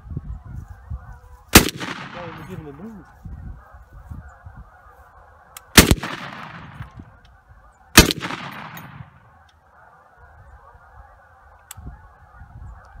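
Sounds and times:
gunshots with echo: 1.6s - 2.6s, 5.8s - 7.0s, 8.0s - 9.3s.

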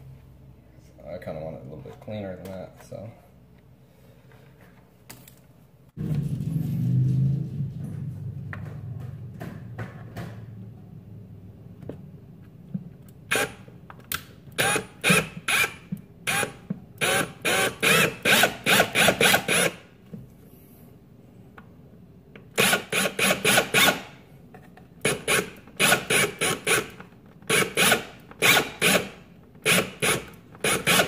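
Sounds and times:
cordless drill bursts: 29.7s - 31.0s.

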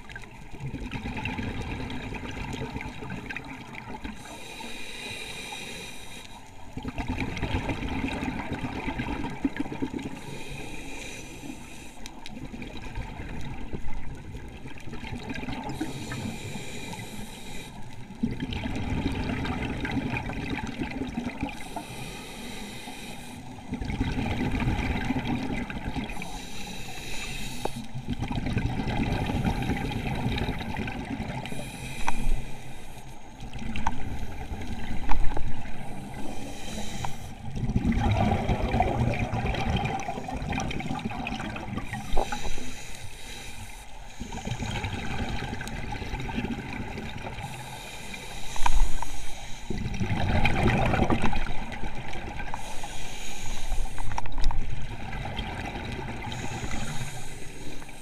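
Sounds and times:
exhaled air bubbling underwater: 0.0s - 58.0s
regulator inhalation hiss: 4.2s - 6.6s, 10.2s - 12.2s, 15.8s - 17.9s, 21.6s - 23.6s, 26.1s - 28.0s, 31.4s - 33.4s, 35.6s - 37.4s, 41.9s - 44.9s, 47.4s - 49.9s, 52.5s - 54.2s, 56.3s - 58.0s.

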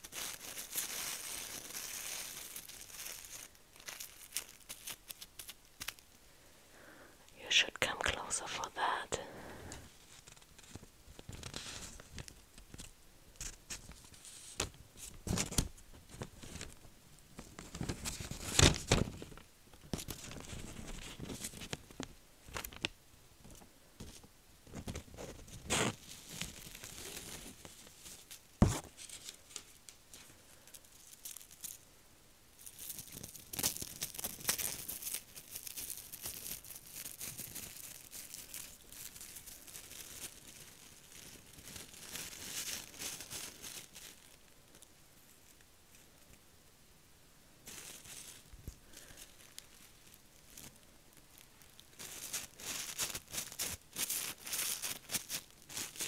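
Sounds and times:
thin sheets rustling and tearing: 0.0s - 6.0s, 10.0s - 16.8s, 24.8s - 31.8s, 32.6s - 44.5s, 47.6s - 50.8s, 51.8s - 56.0s
crumpled foil crinkling: 0.0s - 6.2s, 7.9s - 16.8s, 17.4s - 22.9s, 23.5s - 31.9s, 32.6s - 46.3s, 47.6s - 56.0s.

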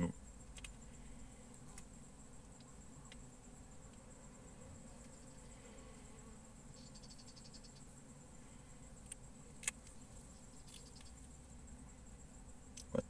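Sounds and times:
honeybees humming: 0.0s - 13.0s
sharp clicks: 0.5s - 0.8s.

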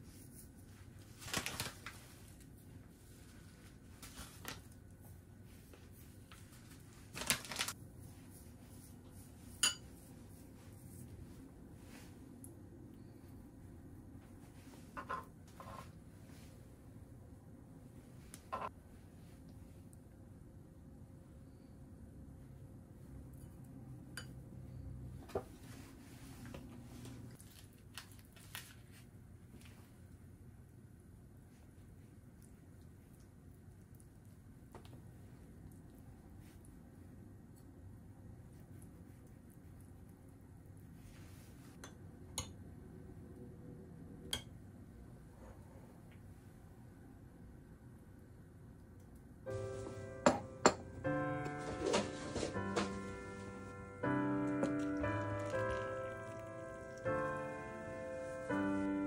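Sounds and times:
packet rustling: 1.1s - 2.0s, 7.1s - 7.8s.

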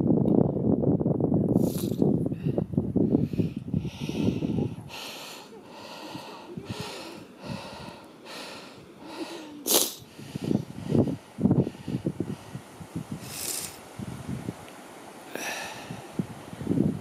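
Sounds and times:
sharp snort-like exhale: 1.6s - 2.0s, 3.3s - 10.6s, 13.2s - 13.8s
heavy rhythmic breathing: 1.6s - 13.8s, 15.3s - 16.1s.

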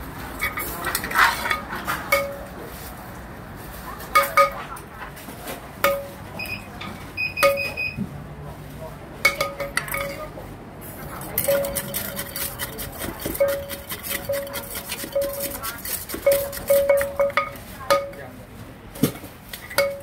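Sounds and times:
metal ladle clinking and scraping: 0.4s - 2.5s, 9.3s - 10.3s, 11.1s - 18.2s, 19.1s - 20.0s
wooden pestle knocking in mortar: 11.4s - 18.2s.

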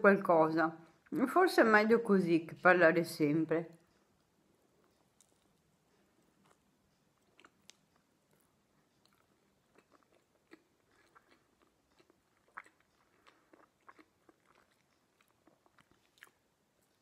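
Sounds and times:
person chewing food: 3.8s - 17.0s.

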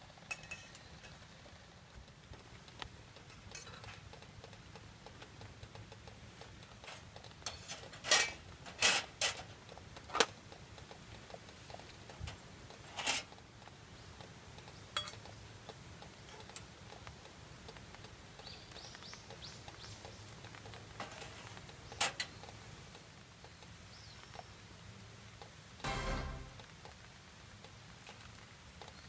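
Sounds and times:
metal utensils clinking on cookware: 0.2s - 1.2s, 3.2s - 4.1s, 6.8s - 9.5s, 12.9s - 13.3s, 14.9s - 15.3s.

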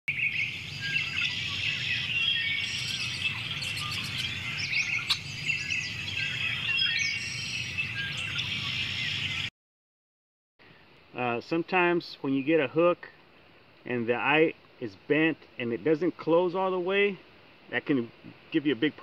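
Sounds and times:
birds chirping and trilling: 0.1s - 9.5s.

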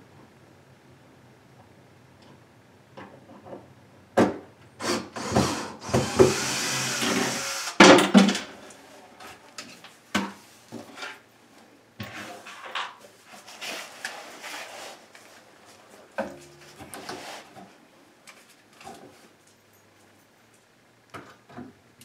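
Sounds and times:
cordless drill running: 4.8s - 7.8s.

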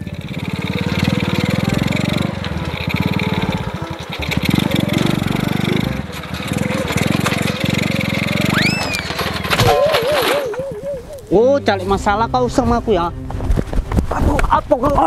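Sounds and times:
small motorbike engine running: 0.0s - 10.7s.

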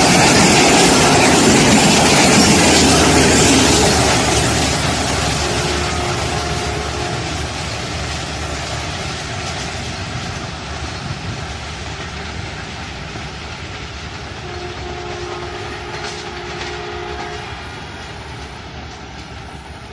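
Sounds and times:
distant train horn: 0.0s - 7.8s, 14.4s - 18.4s
train coaches rumbling and rattling: 0.0s - 19.9s.

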